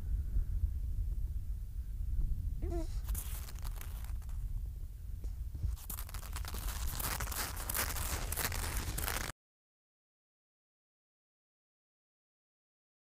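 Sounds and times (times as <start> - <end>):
steady low rumble: 0.0 - 9.2
crunching and scraping on snow: 2.8 - 4.4, 5.6 - 9.3.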